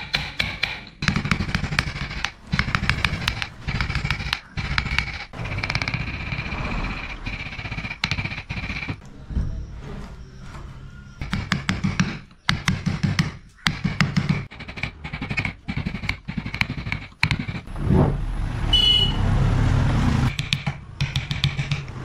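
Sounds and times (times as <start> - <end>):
mallet knocking on chisel: 0.0 - 6.1, 20.3 - 21.9
steady rumbling noise: 1.0 - 10.3.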